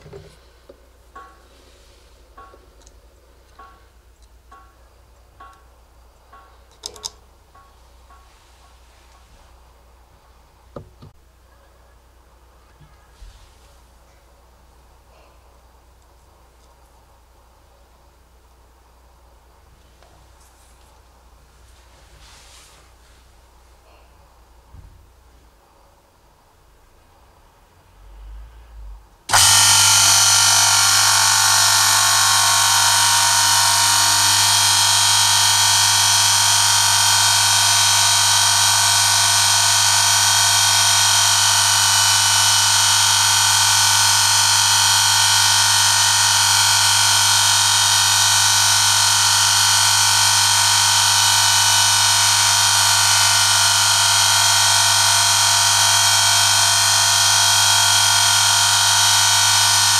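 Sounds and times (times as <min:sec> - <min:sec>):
low motor hum: 0:29.3 - 0:59.9.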